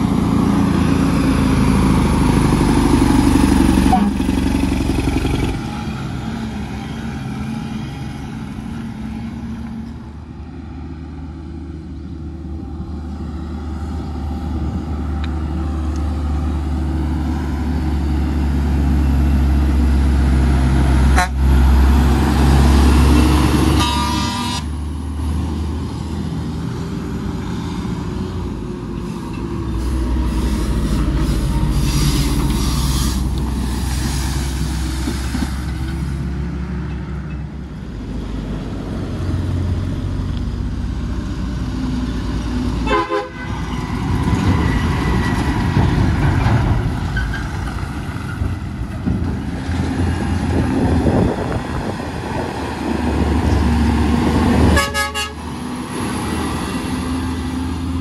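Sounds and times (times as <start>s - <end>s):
truck diesel engine under load: 0.0s - 58.0s
truck horn toot: 3.8s - 4.4s, 21.1s - 21.6s, 23.6s - 24.8s, 42.8s - 43.6s, 54.7s - 55.5s.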